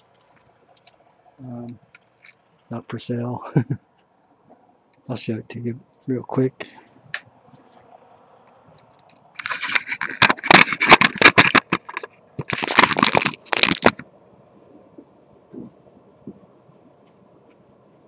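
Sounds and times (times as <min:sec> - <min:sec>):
phone handling scraping and crackling: 0:08.8 - 0:14.0.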